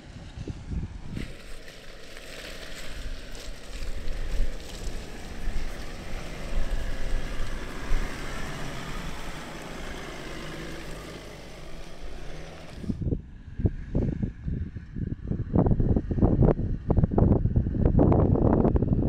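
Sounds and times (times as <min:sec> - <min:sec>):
vehicle engine low rumble: 0:00.0 - 0:19.0
wind buffeting the microphone: 0:00.0 - 0:19.0.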